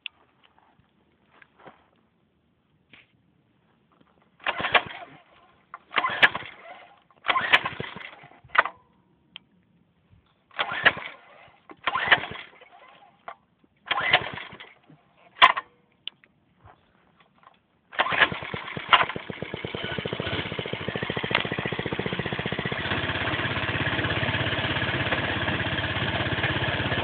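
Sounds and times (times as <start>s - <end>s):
small engine turning over: 4.4s - 8.8s, 10.5s - 13.2s, 13.9s - 14.8s, 18.0s - 27.0s.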